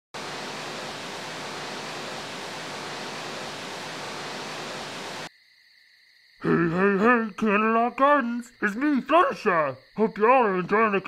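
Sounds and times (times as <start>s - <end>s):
static hiss: 0.2s - 5.3s.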